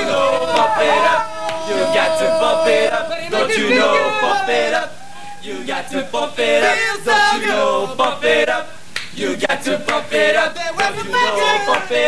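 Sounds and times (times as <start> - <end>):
crowd chanting and singing: 0.0 - 12.0
hand claps: 0.5 - 1.7, 9.0 - 9.2, 10.8 - 11.0, 11.7 - 11.9.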